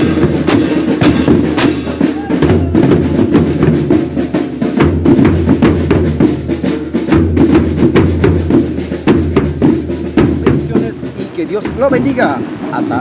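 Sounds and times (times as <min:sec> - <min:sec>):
clashing hand cymbals: 0:00.0 - 0:03.0
bass drum: 0:00.0 - 0:13.0
snare drums: 0:00.0 - 0:13.0.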